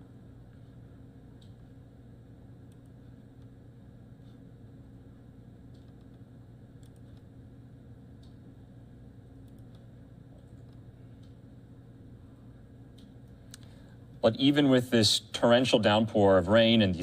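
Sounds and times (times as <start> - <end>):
steady low hum: 0.0 - 17.0
faint clicks: 8.2 - 8.4, 9.4 - 11.4.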